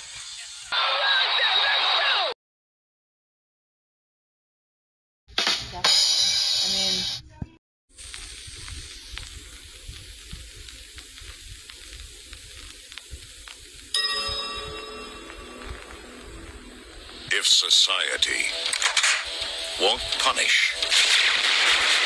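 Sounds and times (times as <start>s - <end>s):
film soundtrack hiss and crackle: 0.0s - 2.3s, 5.4s - 22.0s
faint clicks: 8.0s - 13.9s
steady tones: 12.9s - 21.0s.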